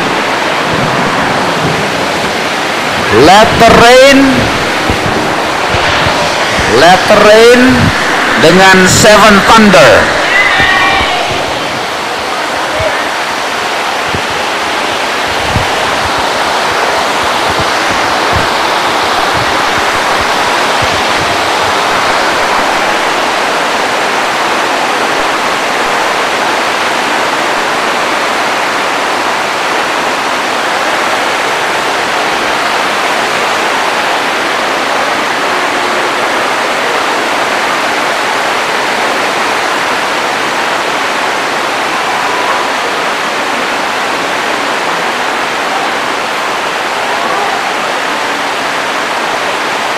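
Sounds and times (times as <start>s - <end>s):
heavy rain on a roof: 0.0s - 49.9s
low thumps: 0.6s - 10.3s.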